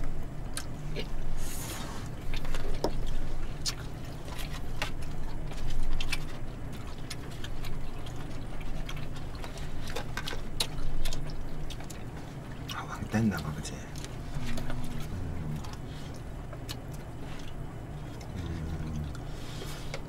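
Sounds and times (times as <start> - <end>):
steady low hum: 0.0 - 20.0
eating sounds: 0.5 - 20.0.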